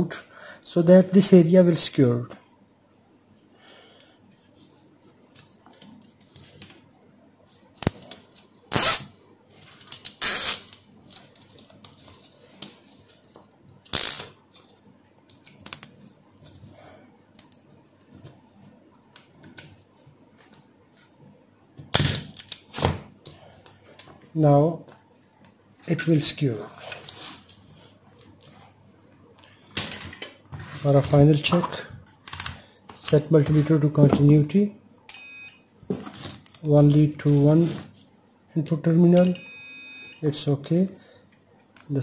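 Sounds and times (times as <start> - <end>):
cable tie zipping: 8.7 - 9.1, 10.2 - 10.6.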